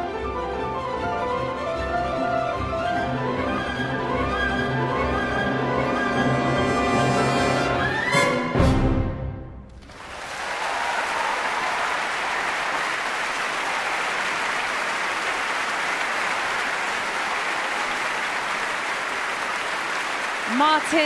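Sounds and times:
audience applauding: 9.7s - 21.0s.

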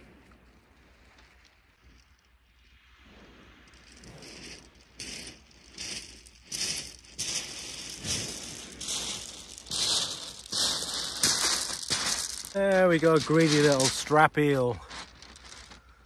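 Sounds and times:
footsteps crunching on shingle: 3.9s - 16.0s.

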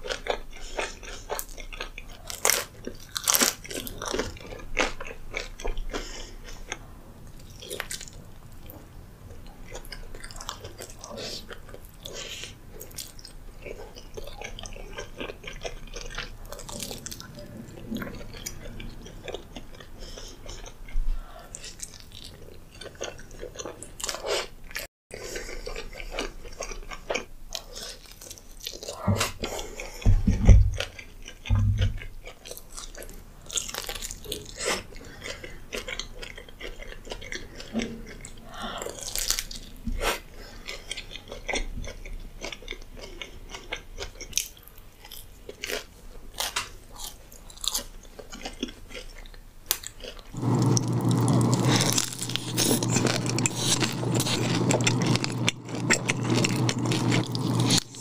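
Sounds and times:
chewing pizza with mouth clicks: 0.0s - 58.0s
low thumps: 31.5s - 32.1s.

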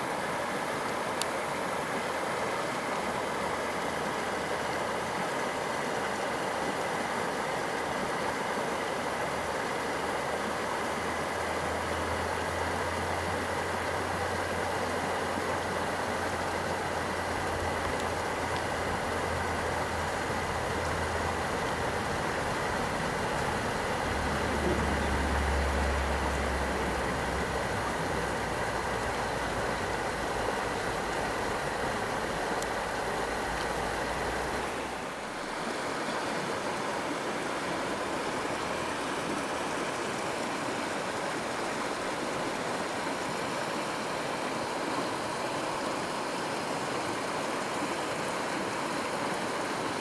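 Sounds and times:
flowing river water: 0.0s - 50.0s.

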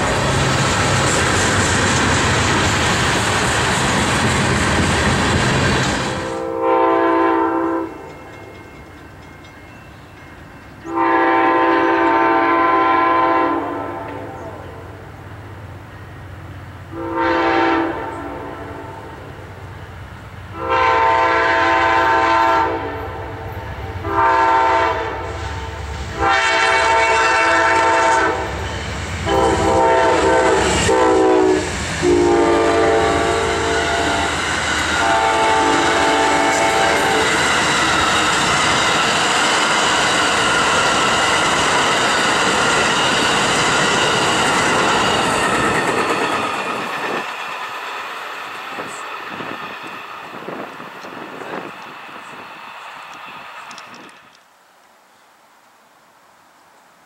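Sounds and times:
freight train rolling noise: 0.0s - 54.5s
train wheels rumbling on rails: 0.0s - 54.5s
train horn blasts: 6.1s - 8.1s, 10.9s - 14.8s, 16.9s - 19.2s, 20.5s - 37.5s.

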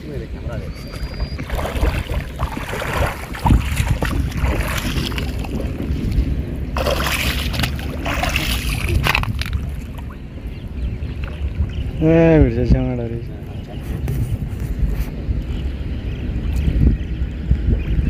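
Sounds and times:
wind on microphone: 0.0s - 18.0s
legs wading through water: 0.7s - 12.0s.

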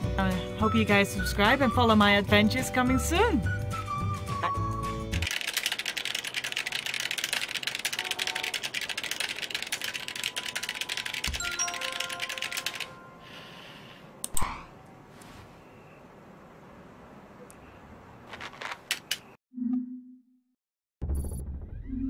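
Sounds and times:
rapid typing on a keyboard: 5.2s - 13.0s.

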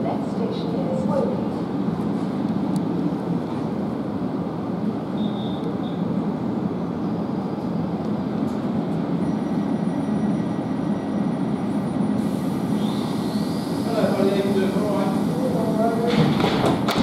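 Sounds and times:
train equipment humming: 0.0s - 17.0s
faint high whine: 5.1s - 6.1s.

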